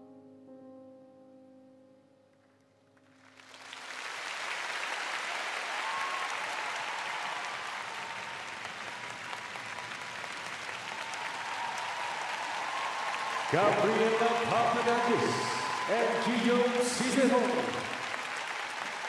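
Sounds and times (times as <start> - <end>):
piano notes: 0.0 - 3.6
audience applauding: 3.2 - 19.0.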